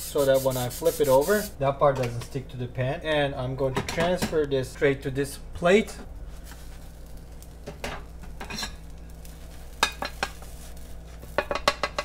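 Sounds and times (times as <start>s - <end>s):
frying pan and plate clinks: 11.4s - 12.0s.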